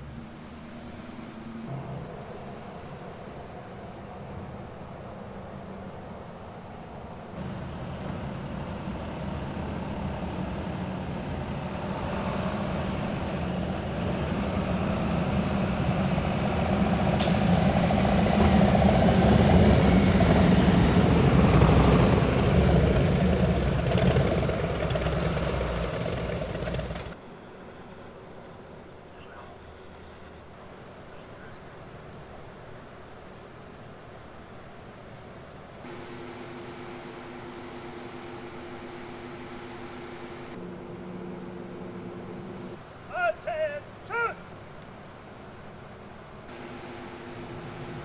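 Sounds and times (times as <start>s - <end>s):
cars and trucks passing: 0.0s - 27.7s, 29.9s - 48.0s
motorcycle engines passing: 19.5s - 27.2s, 35.8s - 42.8s, 46.5s - 48.0s.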